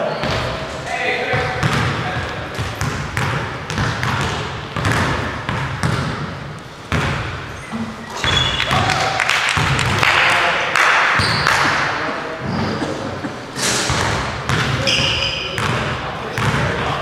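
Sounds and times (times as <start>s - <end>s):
court noise: 0.0s - 17.0s
basketball bouncing on hardwood floor: 1.3s - 6.3s, 6.9s - 7.4s, 9.6s - 10.0s, 13.9s - 15.0s, 15.6s - 15.8s
voices: 7.7s - 17.0s.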